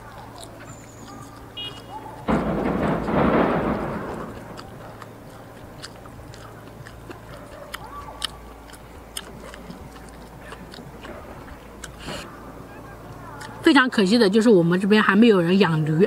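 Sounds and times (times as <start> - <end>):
person chewing meat off bone: 0.0 - 2.3, 4.3 - 12.3
small mouth clicks and smacks: 0.0 - 2.3, 4.4 - 12.3, 13.1 - 13.6.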